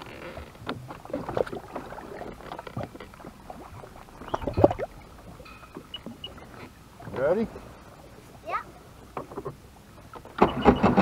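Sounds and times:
water sloshing around boat: 0.0 - 11.0
water splash: 0.6 - 8.0.

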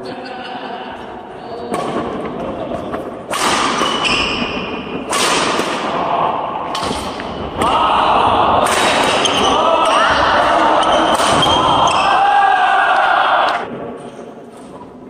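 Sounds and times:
rackets striking shuttlecock: 3.3 - 6.0, 8.6 - 10.0
sneakers squeaking on wooden floor: 3.8 - 4.7.

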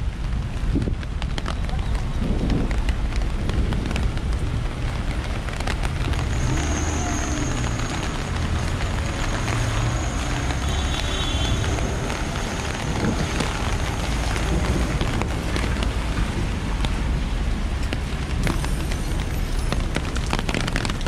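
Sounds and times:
faint rain ticks and spatters: 0.0 - 21.0
rain hissing: 0.0 - 21.0
traffic engines and tyres rumbling: 0.0 - 21.0.

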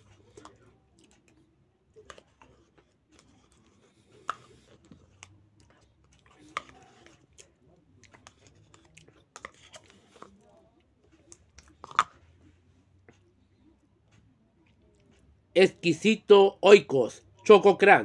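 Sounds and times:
person chewing: 0.0 - 13.3.

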